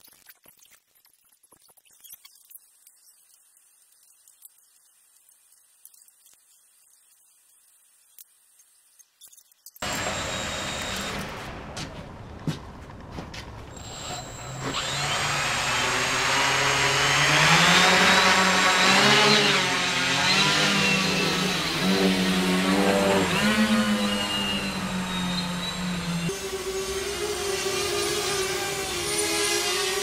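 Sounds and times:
quadcopter motors buzzing: 9.8 - 12.4, 13.6 - 30.0.

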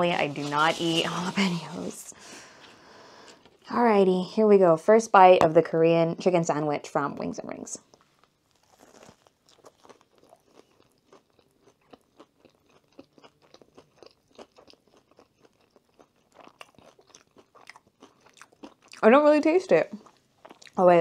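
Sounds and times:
faint chewing crunches: 7.8 - 19.1, 19.9 - 20.8.

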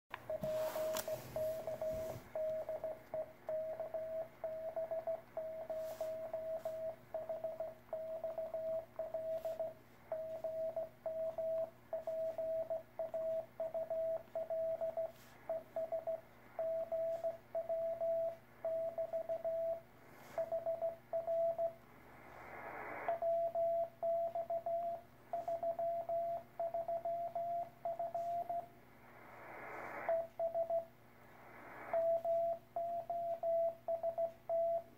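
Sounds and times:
faint radio band hiss: 0.1 - 34.9
morse code beeps: 0.2 - 21.8, 23.1 - 28.7, 29.9 - 31.0, 31.9 - 34.9
static hiss burst: 21.9 - 23.2, 28.8 - 30.4, 31.1 - 32.2.

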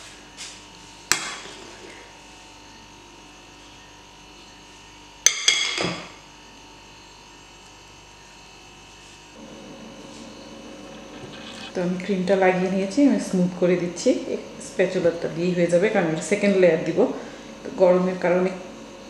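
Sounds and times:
spatula blade scraping: 10.1 - 12.2.

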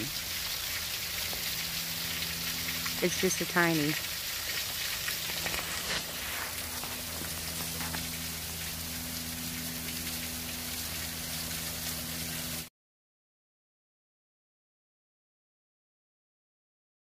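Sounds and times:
water splashing into a pool: 0.0 - 12.7.

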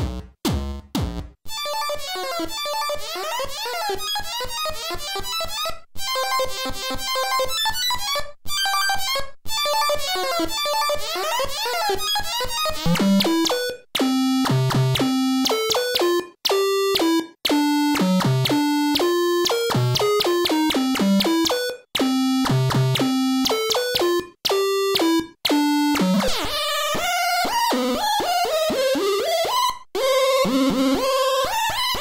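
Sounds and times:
chip-style synthesizer tones: 12.5 - 32.0.

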